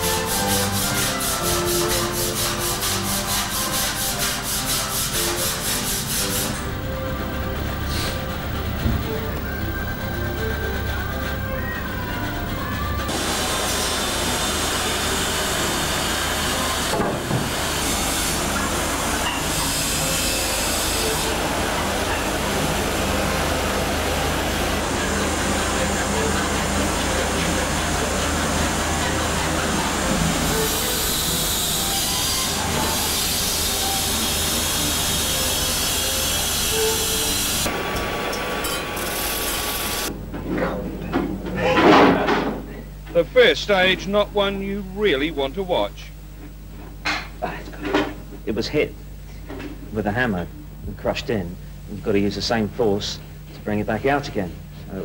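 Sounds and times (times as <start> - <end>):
workshop background hiss: 0.0 - 55.0
low steady hum: 5.7 - 13.2.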